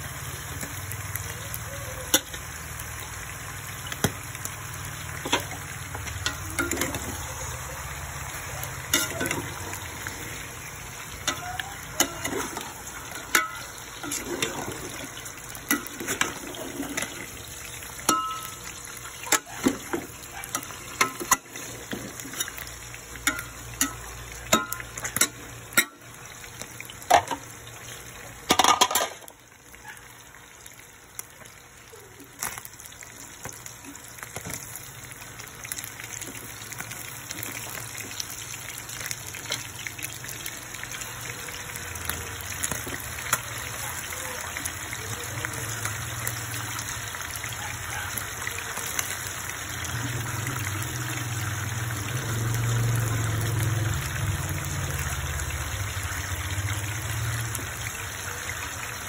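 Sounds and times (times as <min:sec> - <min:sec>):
frying sizzle: 0:00.0 - 0:59.0
spatula clinking and scraping pot: 0:05.2 - 0:07.2, 0:08.8 - 0:09.7, 0:11.2 - 0:17.4, 0:18.1 - 0:18.7, 0:19.3 - 0:26.0.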